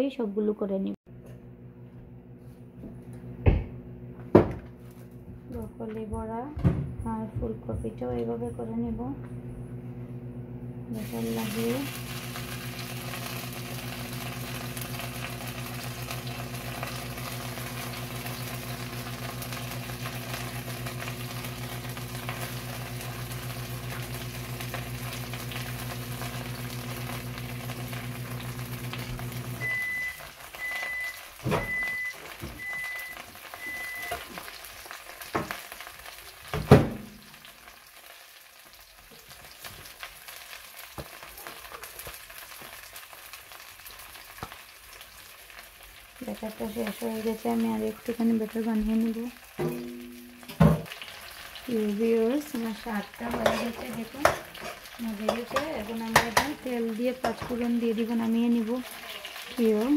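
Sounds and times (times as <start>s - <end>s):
fritters sizzling in oil: 10.9s - 59.9s
short beeps: 29.6s - 34.2s
kitchenware knocking against pan: 49.6s - 50.9s, 55.3s - 56.6s.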